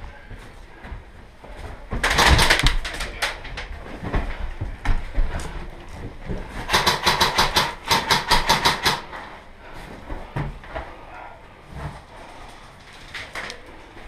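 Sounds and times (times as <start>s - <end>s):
airsoft gun rapid shots: 2.0s - 2.9s, 6.7s - 9.1s.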